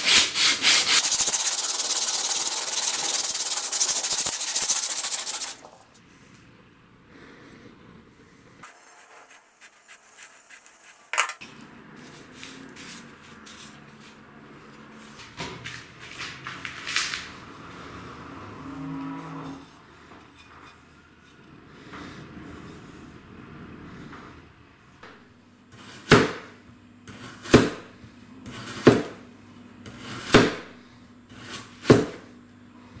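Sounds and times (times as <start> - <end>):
knife turned over paper on stone: 0.8 - 5.8, 8.7 - 14.2
knife swishing through potato: 8.7 - 11.2, 12.0 - 15.2.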